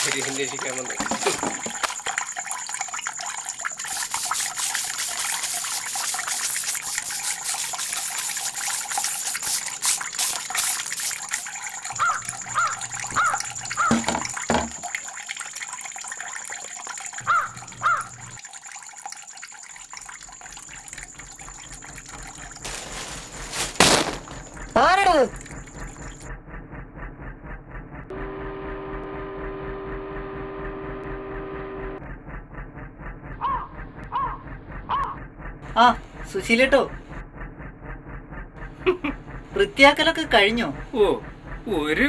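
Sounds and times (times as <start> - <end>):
broom sweeping concrete: 3.9 - 11.6, 22.6 - 24.3.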